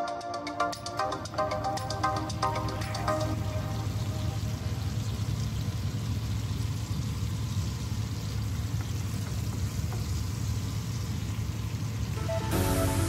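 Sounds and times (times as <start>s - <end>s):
low steady hum: 1.0s - 8.8s, 10.1s - 13.0s
oil sizzling in a frying pan: 2.8s - 13.0s.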